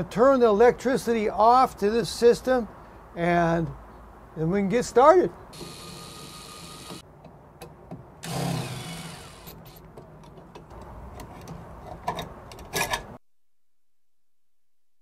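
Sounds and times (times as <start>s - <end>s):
cordless drill whirring: 5.6s - 7.0s, 8.2s - 9.6s.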